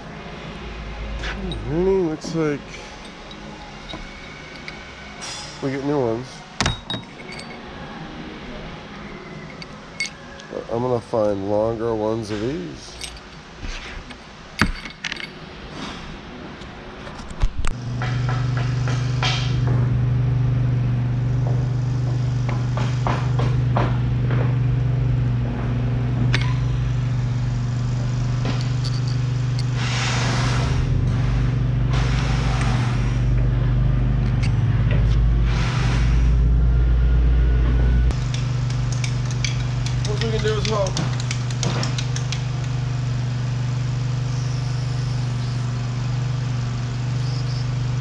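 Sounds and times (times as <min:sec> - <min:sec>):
light metal clinks: 0:06.6 - 0:07.7, 0:09.5 - 0:10.5, 0:12.8 - 0:13.4
motor humming: 0:37.6 - 0:48.0.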